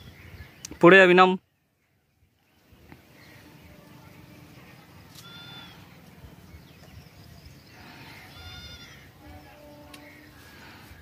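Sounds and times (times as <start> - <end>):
low outdoor rumble: 2.2 - 11.0
faint animal calls: 5.1 - 5.9, 7.8 - 10.5.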